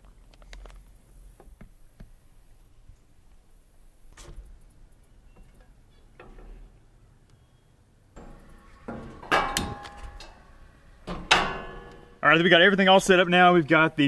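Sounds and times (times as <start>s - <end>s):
skillet knocking on metal grate: 8.2s - 10.4s
gas burner hissing: 8.2s - 14.0s.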